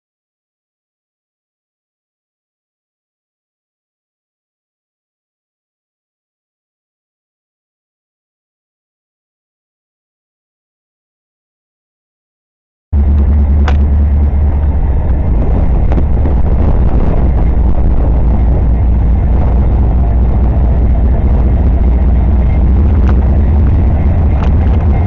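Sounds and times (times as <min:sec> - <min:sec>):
diesel locomotives rumbling: 0:13.0 - 0:25.0.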